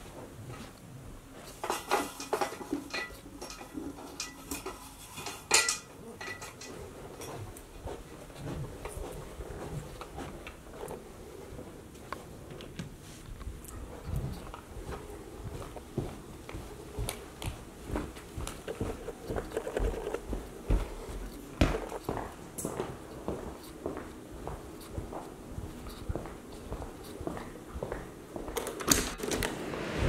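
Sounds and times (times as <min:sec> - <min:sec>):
light clicks and metallic clinks: 0:01.6 - 0:07.4.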